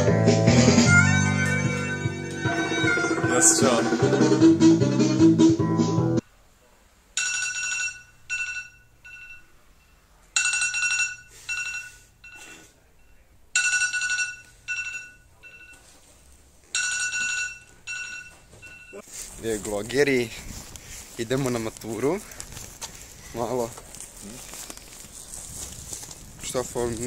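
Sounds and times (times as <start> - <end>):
guitar music: 0.0 - 6.2
phone ringtone: 0.8 - 3.9, 7.2 - 9.5, 10.4 - 12.4, 13.6 - 15.9, 16.7 - 19.0.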